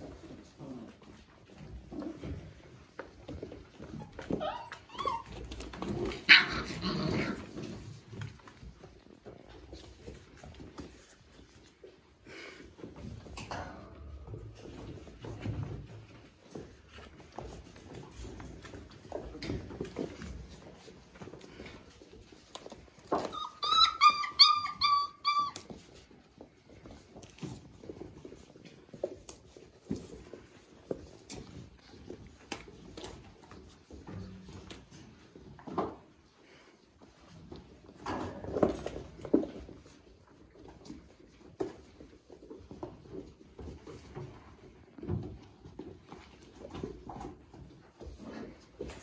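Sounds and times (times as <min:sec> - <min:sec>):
puppies scuffling: 0:00.0 - 0:49.0
puppy paws pattering: 0:00.0 - 0:49.0
puppy whining: 0:03.5 - 0:07.8, 0:21.7 - 0:26.4.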